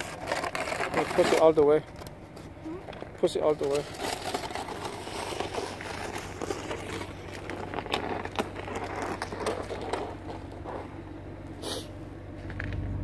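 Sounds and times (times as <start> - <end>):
snow shovel scraping and crunching: 0.0 - 1.8, 3.2 - 11.8.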